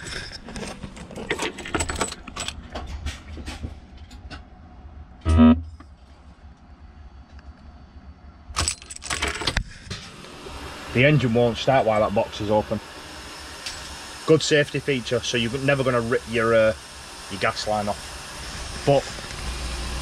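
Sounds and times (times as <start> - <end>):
keys jangling in ignition: 0.1 - 2.6, 8.6 - 9.6
short buzz: 5.2 - 5.8.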